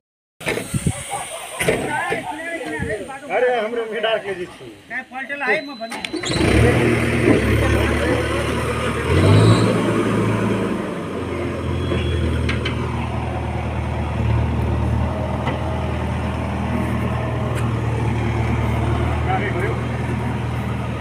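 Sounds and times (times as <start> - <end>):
diesel engine running: 6.0 - 21.0.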